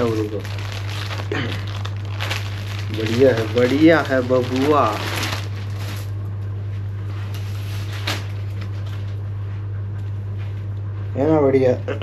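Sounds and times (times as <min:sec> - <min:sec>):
plastic packaging rustling: 0:00.0 - 0:06.3, 0:07.1 - 0:09.2
low room hum: 0:00.0 - 0:12.0.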